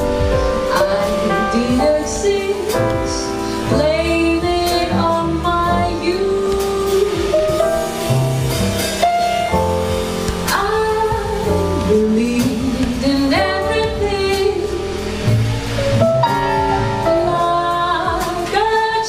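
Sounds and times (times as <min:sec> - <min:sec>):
drum kit: 0:00.0 - 0:19.0
grand piano: 0:00.0 - 0:19.0
upright double bass: 0:00.0 - 0:19.0
woman singing: 0:00.2 - 0:08.0, 0:10.4 - 0:15.2, 0:17.1 - 0:19.0.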